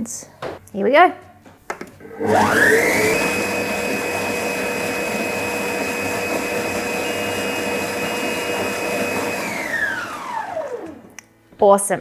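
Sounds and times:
kitchen blender motor whine: 2.0 - 11.2.

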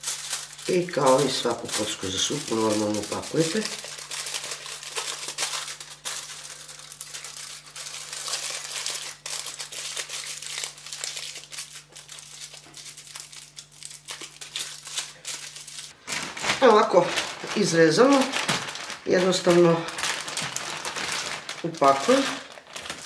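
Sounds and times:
aluminium foil crinkling: 0.0 - 23.0.

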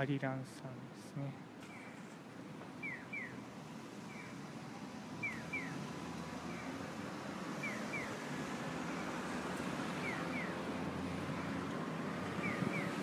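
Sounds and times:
street traffic noise: 0.0 - 13.0
crossing signal chirping: 2.8 - 3.4, 5.2 - 6.7, 7.6 - 8.2, 10.0 - 10.7, 12.3 - 13.0.

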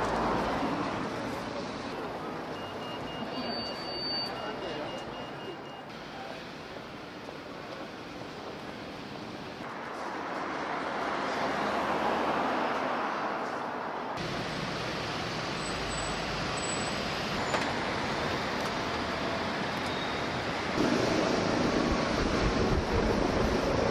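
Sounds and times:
city road traffic: 0.0 - 23.9.

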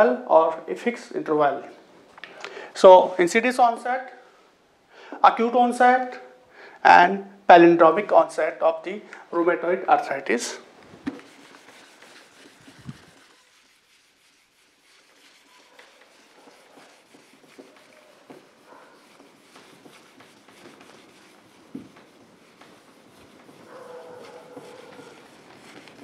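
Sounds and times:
duster rubbing on whiteboard: 10.9 - 26.0.

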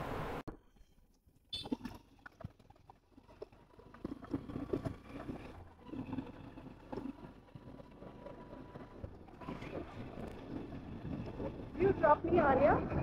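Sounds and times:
motor scooter road noise: 3.0 - 13.0
wind on microphone: 9.4 - 13.0.

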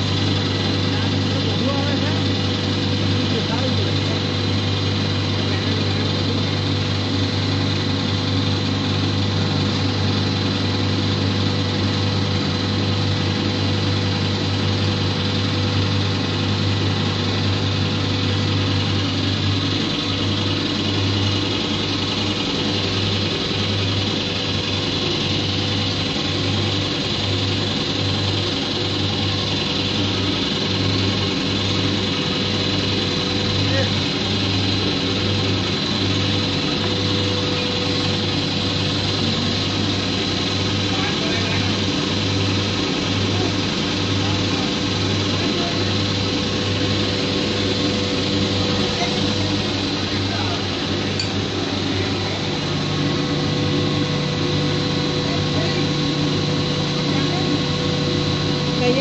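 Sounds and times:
constant high whine: 0.0 - 59.0
machine hum: 0.0 - 59.0.

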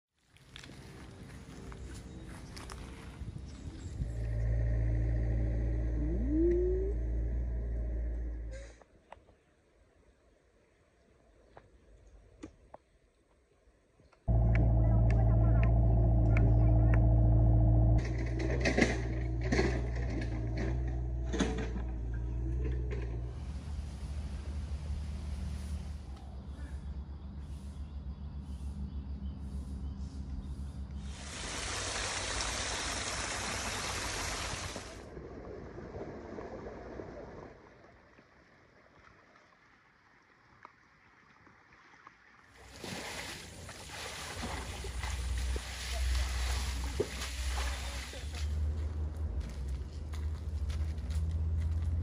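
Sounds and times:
excavator engine humming: 14.3 - 25.5
rushing noise with low rumble: 14.3 - 26.2
metallic clanks and knocks: 18.0 - 23.2
even hiss: 31.0 - 35.0.

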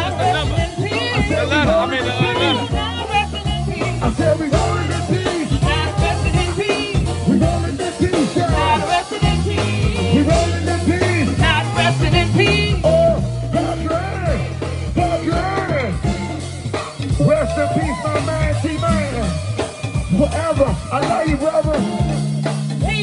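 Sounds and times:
person singing into microphone: 0.0 - 15.9
conga and drum percussion: 0.0 - 23.0
gospel band playing: 0.0 - 23.0
keyboard: 0.0 - 23.0.

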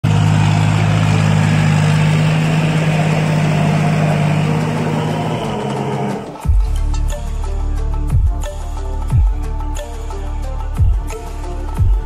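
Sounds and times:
tractor diesel engine running: 0.0 - 6.8
background music with a beat: 4.4 - 12.0.

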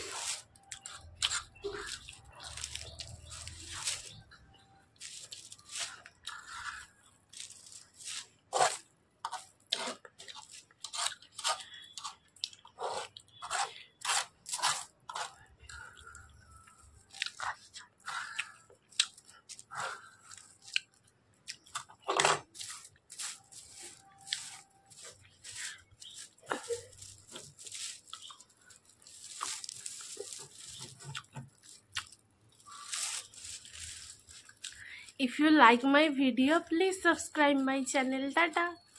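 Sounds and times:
fingers crinkling plastic sheet: 0.0 - 12.2, 16.8 - 35.9
wet chewing and smacking: 9.3 - 23.1, 23.8 - 33.0.

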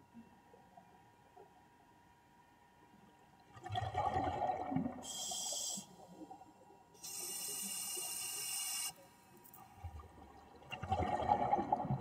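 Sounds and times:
underwater bubbling rumble: 9.8 - 12.0.

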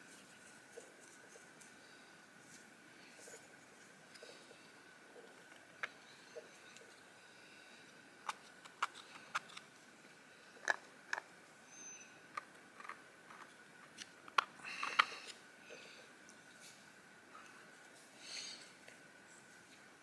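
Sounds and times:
stone disc clicks and scrapes: 8.2 - 9.7, 12.3 - 15.4.

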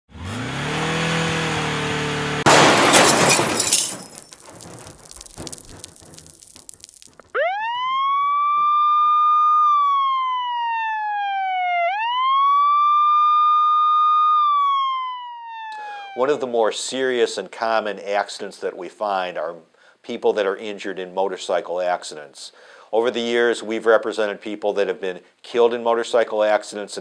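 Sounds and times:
engine revving: 0.1 - 2.5
loud crash with shattering glass: 2.4 - 7.3
debris clattering and tinkling: 2.5 - 7.3
emergency vehicle siren wailing: 7.3 - 16.5.

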